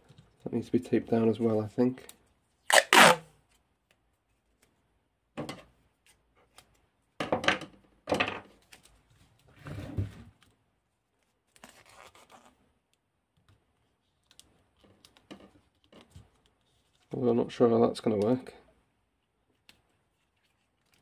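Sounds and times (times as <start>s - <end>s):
tape ripping off roll: 2.7s - 3.2s.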